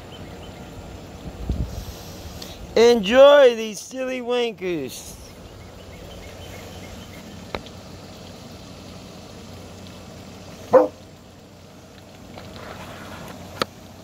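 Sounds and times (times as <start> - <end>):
low outdoor hiss: 0.0 - 14.0
puppy barking: 10.7 - 11.0.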